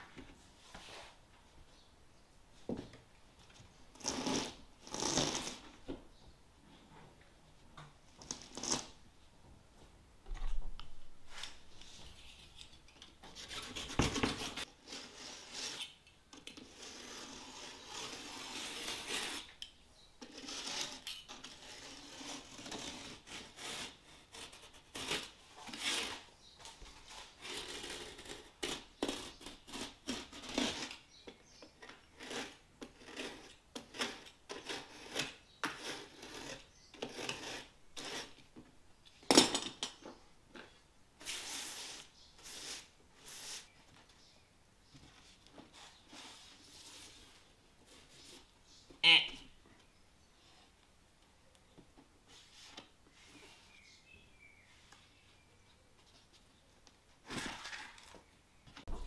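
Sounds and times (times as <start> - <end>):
hand tool scraping a wall: 4.0 - 5.7, 13.4 - 19.6, 20.2 - 26.3, 26.9 - 38.5.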